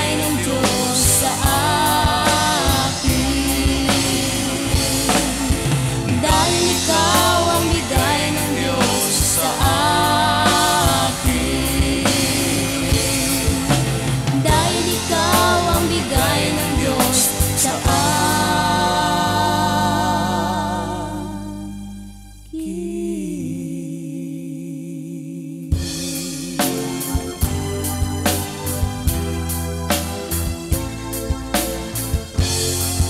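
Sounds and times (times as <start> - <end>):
guitars: 0.0 - 20.5
drum kit: 0.0 - 21.5, 25.7 - 33.0
keyboards: 0.0 - 23.2, 25.8 - 33.0
bass: 0.0 - 33.0.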